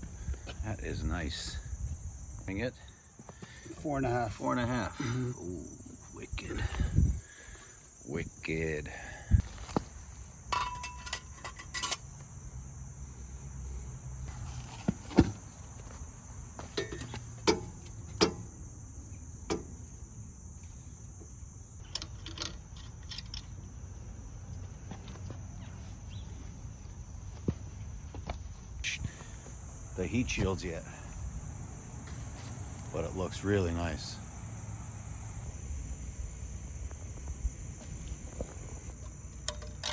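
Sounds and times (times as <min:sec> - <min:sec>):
insects chirring: 0:00.0 - 0:39.9
metal clinks and knocks: 0:10.5 - 0:12.1, 0:16.6 - 0:18.5, 0:21.8 - 0:23.7, 0:39.0 - 0:39.9
metallic ring: 0:10.5 - 0:12.1.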